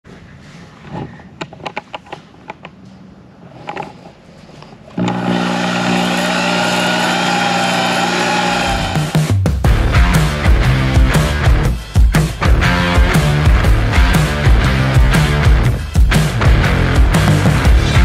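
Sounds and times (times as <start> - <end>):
electric drill honing cylinder: 5.0 - 9.2.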